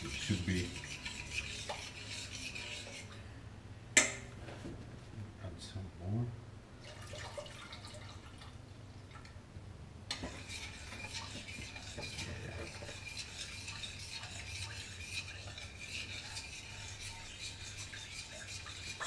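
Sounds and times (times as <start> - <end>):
utensil stirring sauce in saucepan: 0.0 - 3.2, 10.1 - 19.0.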